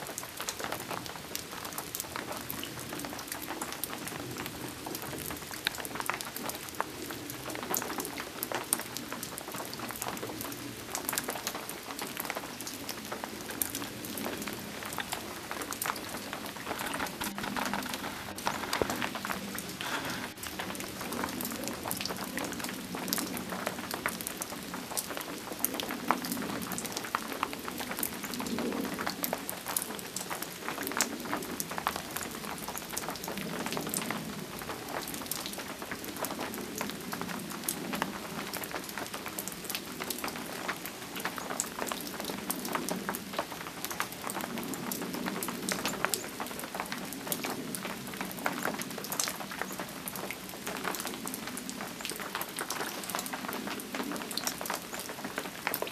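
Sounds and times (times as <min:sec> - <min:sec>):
raindrops ticking on surfaces: 0:00.0 - 0:55.9
steady rain falling: 0:00.0 - 0:55.9.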